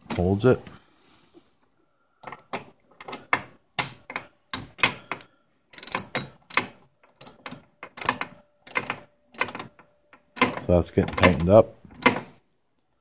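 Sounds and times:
wrench clicking: 0:02.2 - 0:09.8.

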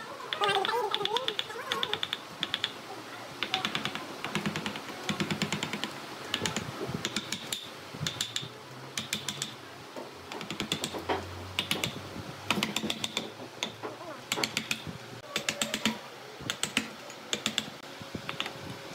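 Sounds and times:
mallet tapping chisel into wood: 0:03.7 - 0:09.6, 0:11.6 - 0:14.8.

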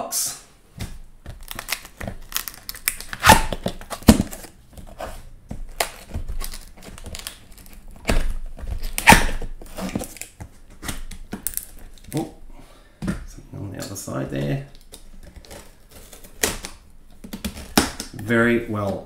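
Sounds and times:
cardboard scraping and crinkling: 0:03.5 - 0:11.1, 0:14.4 - 0:16.4.

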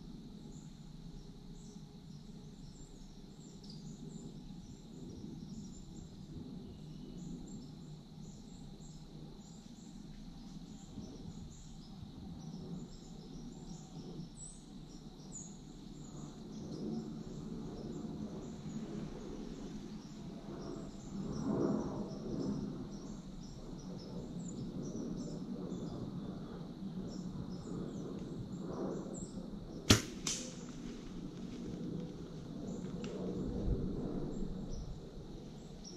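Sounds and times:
insects chirping: 0:00.0 - 0:35.9
sharp click of a bow: 0:29.9 - 0:31.0.

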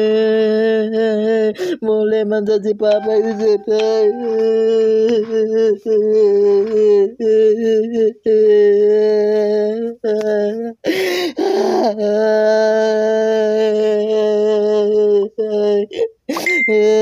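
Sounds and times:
man wailing in sing-song voice: 0:00.0 - 0:02.2, 0:02.9 - 0:10.8
sharp gasping breath: 0:01.6 - 0:01.8, 0:10.9 - 0:11.6.

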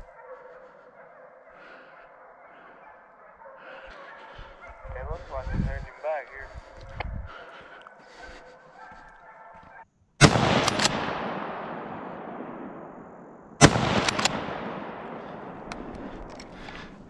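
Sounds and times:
rifle shots echoing: 0:10.2 - 0:17.0.

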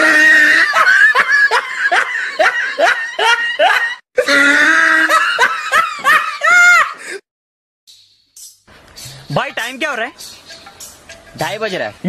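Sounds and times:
person laughing: 0:00.1 - 0:07.2.

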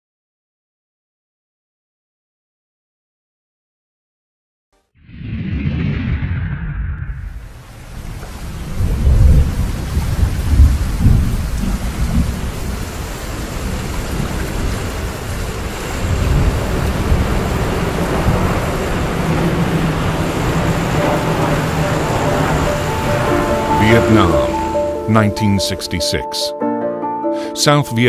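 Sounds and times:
rolling thunder: 0:05.0 - 0:25.0
heavy rain: 0:07.2 - 0:26.0
propeller aircraft engines droning: 0:12.8 - 0:26.3.

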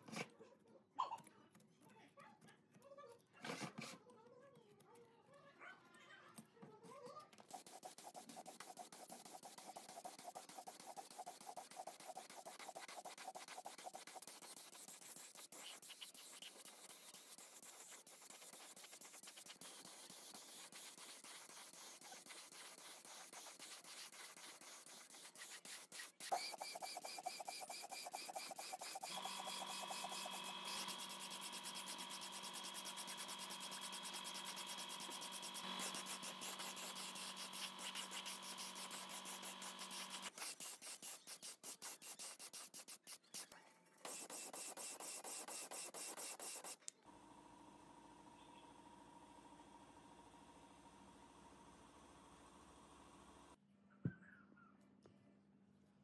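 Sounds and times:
paint spray gun hissing: 0:07.5 - 0:42.8.

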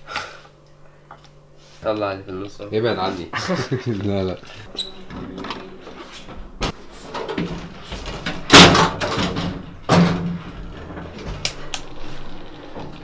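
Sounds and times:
elevator doors banging shut: 0:06.6 - 0:11.2.

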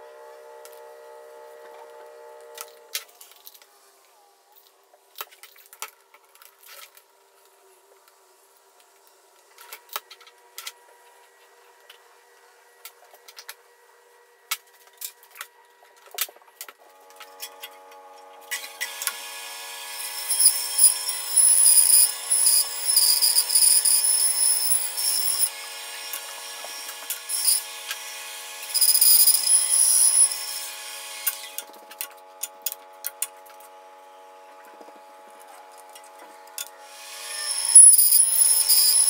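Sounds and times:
band saw running: 0:00.0 - 0:02.9, 0:18.4 - 0:32.8, 0:35.1 - 0:39.0
saw blade cutting wood: 0:18.4 - 0:31.7, 0:36.8 - 0:39.0.

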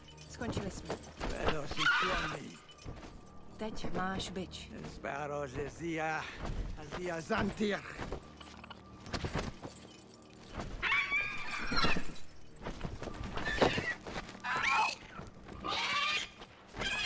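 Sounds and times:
dragon shrieking: 0:13.4 - 0:17.0.

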